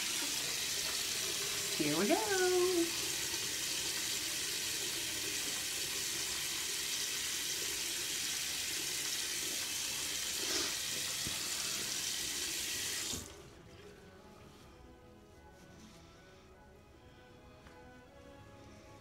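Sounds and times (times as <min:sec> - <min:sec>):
tap water running into sink: 0:00.0 - 0:13.4
faint music: 0:10.8 - 0:19.0.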